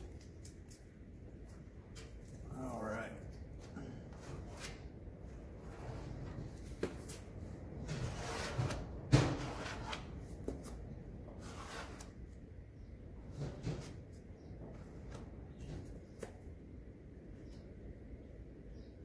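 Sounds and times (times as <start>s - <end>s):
spreader scraping filler: 7.7s - 10.2s, 11.3s - 12.2s.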